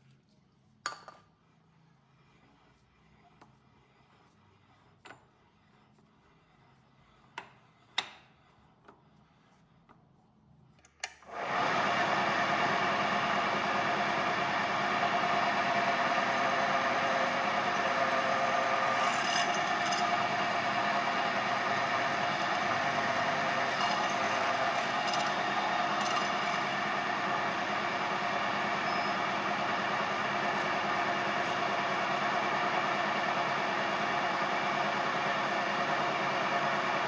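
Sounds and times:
mill drilling into steel tubing: 11.2 - 37.0.

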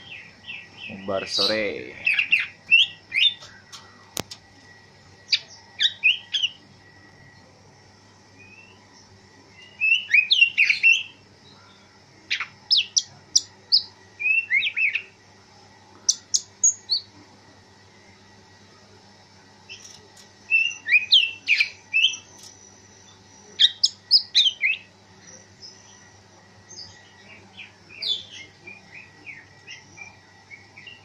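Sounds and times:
bird singing whistled notes: 8.4 - 8.8, 9.6 - 11.1, 12.4 - 15.1, 20.5 - 22.3.

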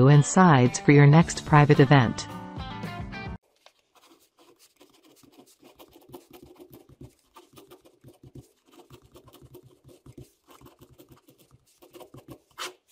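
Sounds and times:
pen scratching on paper: 3.6 - 12.9.

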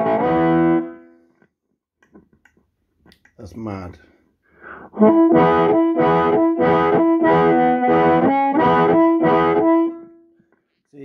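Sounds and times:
amplified harmonica chords: 0.0 - 1.1, 4.7 - 10.3.

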